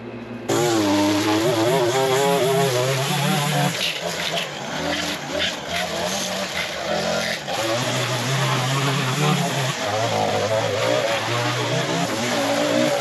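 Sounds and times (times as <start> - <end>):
string trimmer engine revving: 0.5 - 13.0
trimmer line cutting grass: 0.5 - 13.0.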